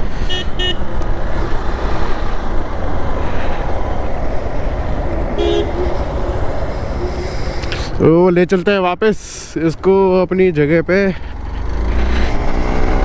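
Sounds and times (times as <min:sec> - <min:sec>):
short horn beep: 0:05.4 - 0:06.0.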